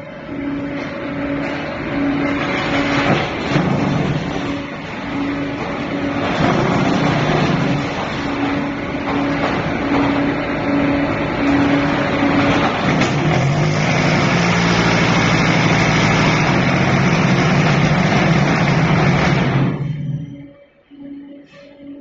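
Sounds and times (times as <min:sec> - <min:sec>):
block making machine running: 0:00.0 - 0:20.5
pulsing hum: 0:14.2 - 0:22.0.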